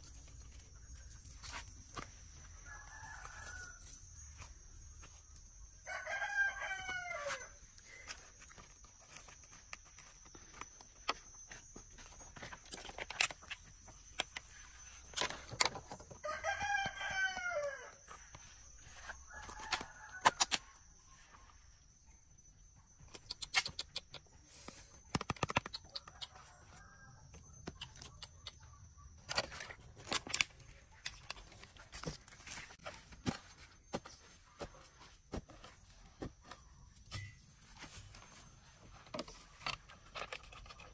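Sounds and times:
rooster crowing: 2.6 - 4.0, 5.8 - 7.6, 16.2 - 18.2, 18.9 - 20.7.

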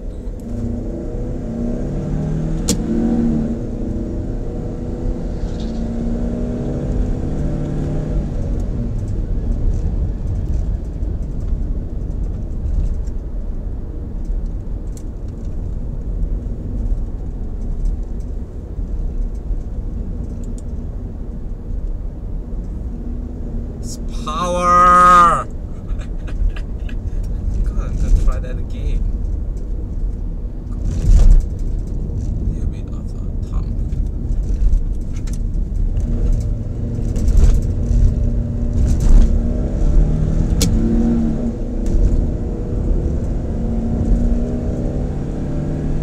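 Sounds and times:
car engine revving: 0.0 - 10.5, 23.0 - 29.5, 30.7 - 46.0
road and tyre rumble: 0.0 - 46.0.

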